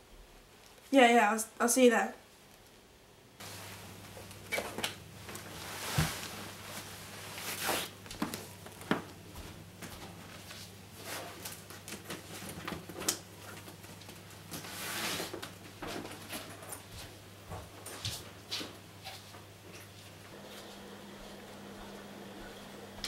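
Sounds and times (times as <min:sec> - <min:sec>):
footsteps: 0:20.3 - 0:23.0
low steady hum: 0:20.3 - 0:23.0.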